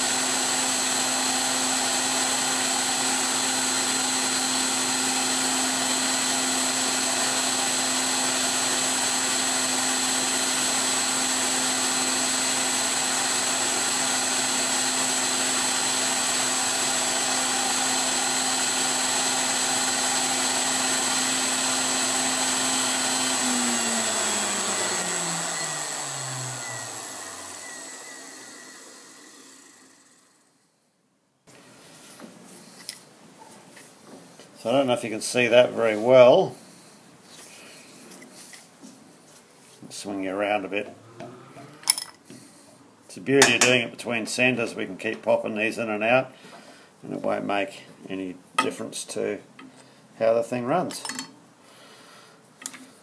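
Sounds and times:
grinder whining: 0.0s - 30.4s.

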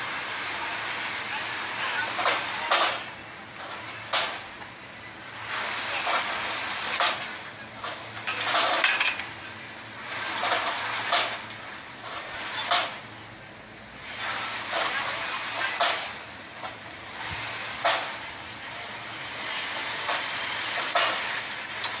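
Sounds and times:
vehicles rushing past: 0.0s - 4.5s
metal clanks and rattles: 2.2s - 4.7s, 5.9s - 9.4s, 10.2s - 13.0s, 20.0s - 22.0s.

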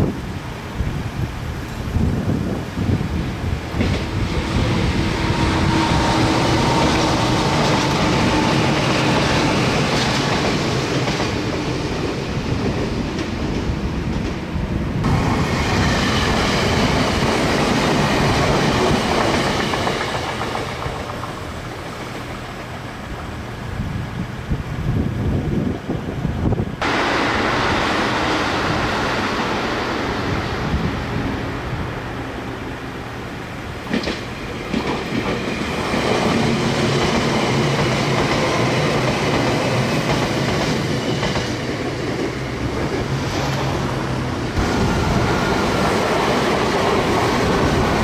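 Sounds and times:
electric train running: 3.7s - 12.6s, 15.0s - 23.4s, 33.8s - 48.0s.

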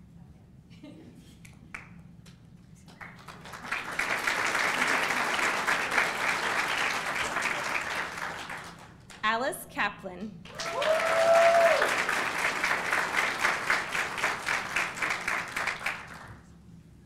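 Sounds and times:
audience applauding: 2.9s - 9.2s, 10.5s - 16.4s.

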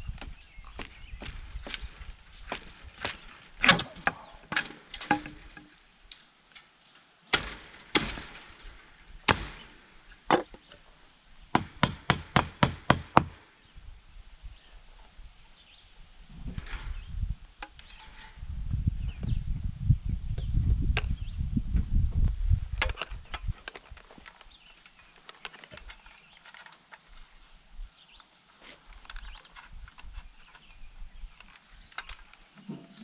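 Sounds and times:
hammer driving nails into wood: 11.5s - 13.4s.

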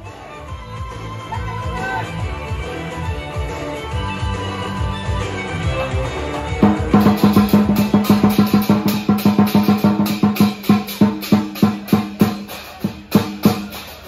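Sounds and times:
drum and cymbals rolling: 5.5s - 14.0s.

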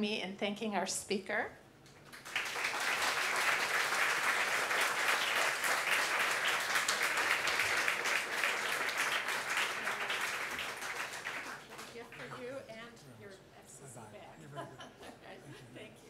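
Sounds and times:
audience applauding: 2.1s - 12.4s.

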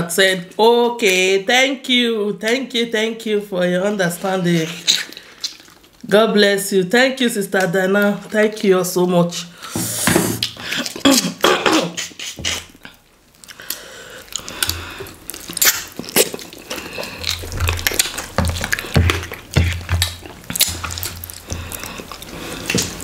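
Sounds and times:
wet chewing and lip-smacking: 4.7s - 6.0s, 10.4s - 11.4s, 12.0s - 23.0s.

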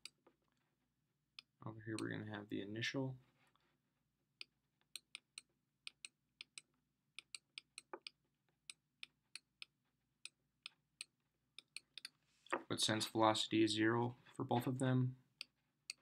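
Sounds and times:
stylus tapping on tablet: 5.0s - 9.7s.

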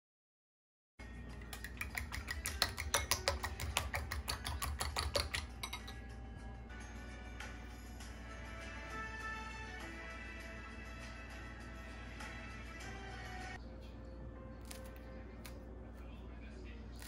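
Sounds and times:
background music: 1.0s - 17.0s
spoon clinking in ceramic bowl: 1.3s - 6.1s.

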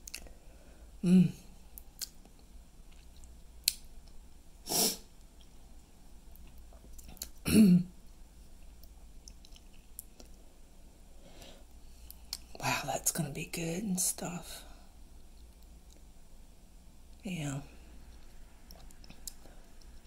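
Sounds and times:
wet mouth clicks: 0.0s - 0.3s, 1.8s - 2.2s
man chewing: 8.6s - 10.4s.

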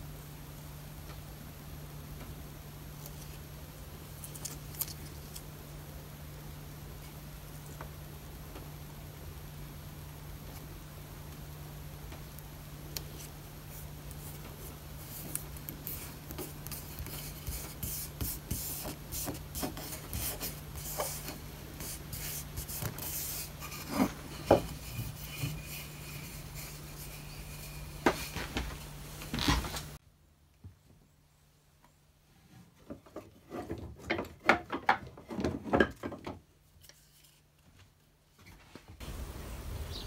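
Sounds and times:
palm rubbing paper on board: 13.1s - 28.6s.

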